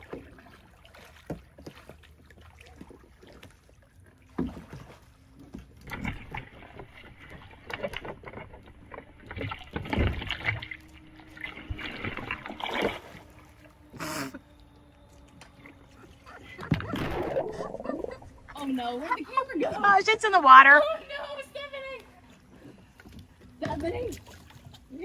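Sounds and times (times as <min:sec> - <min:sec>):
water splashing and sloshing: 0:00.0 - 0:25.0
short sharp splash: 0:16.6 - 0:17.9.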